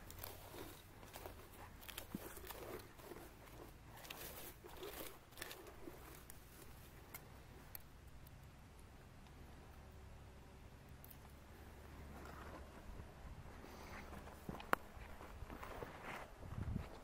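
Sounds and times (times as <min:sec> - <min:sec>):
crunching and rustling clicks: 0:00.0 - 0:09.4, 0:14.0 - 0:15.9
low steady rumble: 0:00.0 - 0:15.8.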